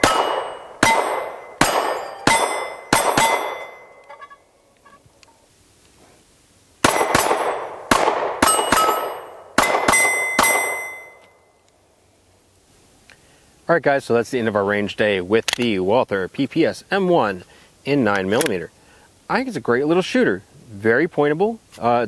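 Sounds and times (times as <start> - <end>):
pistol shots: 0.0 - 3.9, 6.8 - 11.0
ring of struck steel: 0.0 - 4.4, 8.4 - 11.2.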